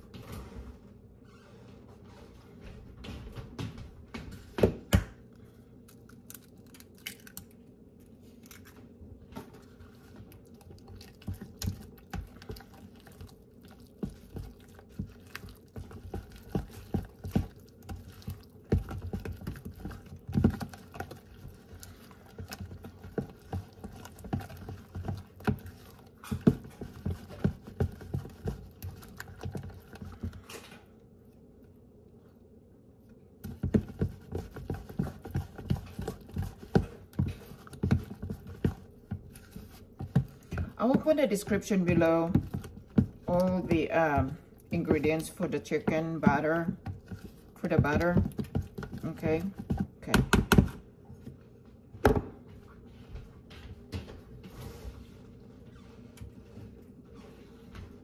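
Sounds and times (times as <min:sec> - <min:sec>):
fork stirring batter in plastic bowl: 0:09.2 - 0:30.7, 0:33.4 - 0:51.4.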